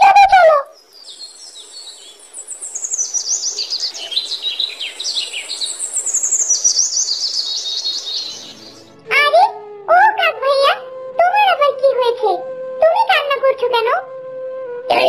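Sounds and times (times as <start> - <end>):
songbirds chirping: 0.0 - 13.8
faint hiss: 0.6 - 9.0.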